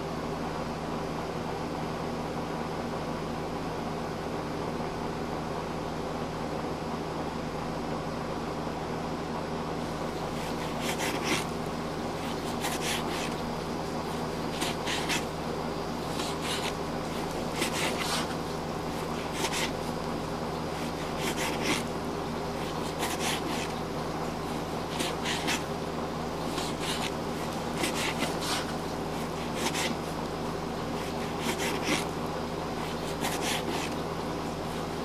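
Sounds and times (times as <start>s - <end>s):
steady low hum: 0.0s - 35.0s
fingers scratching on microphone: 10.2s - 15.4s, 16.0s - 21.9s, 22.5s - 25.8s, 26.4s - 32.2s, 32.8s - 35.0s.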